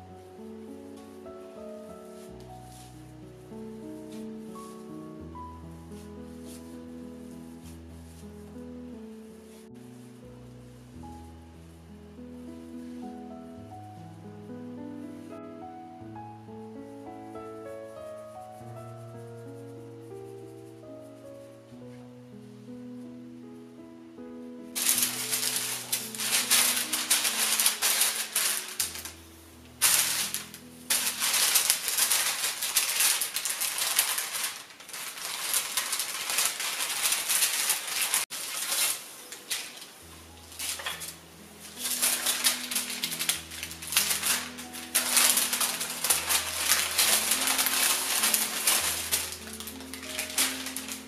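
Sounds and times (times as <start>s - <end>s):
baking paper crackling: 0.0s - 8.6s, 24.8s - 51.0s
soft background music: 0.0s - 51.0s.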